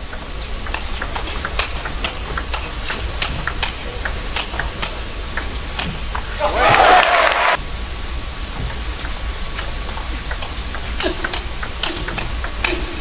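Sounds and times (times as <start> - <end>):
table tennis ball clicking: 0.0 - 6.3, 9.9 - 12.9
steady background hiss: 0.0 - 13.0.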